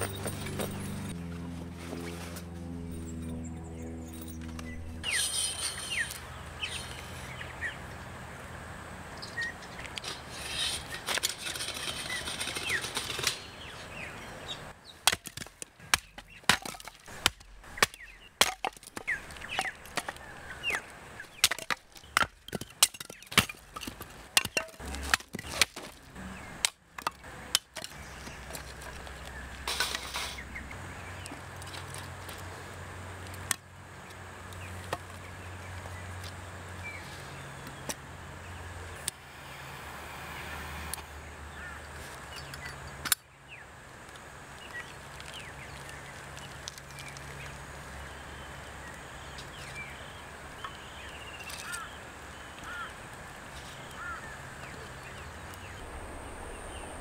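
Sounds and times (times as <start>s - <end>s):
birds chirping: 0.0s - 8.1s, 9.1s - 15.1s, 17.1s - 24.8s, 26.2s - 32.0s, 40.2s - 43.7s, 44.5s - 57.0s.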